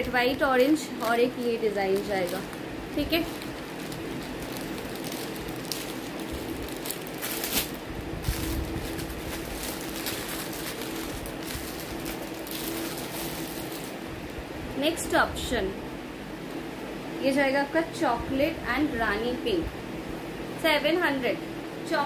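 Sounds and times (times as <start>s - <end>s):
cloth rustling: 0.0s - 14.4s
electric fan running: 0.0s - 22.0s.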